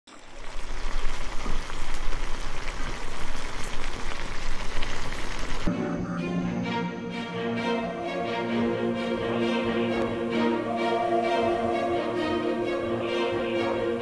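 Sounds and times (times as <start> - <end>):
meat and onions sizzling in a pan: 0.2 - 5.7
music with held tones: 5.7 - 14.0.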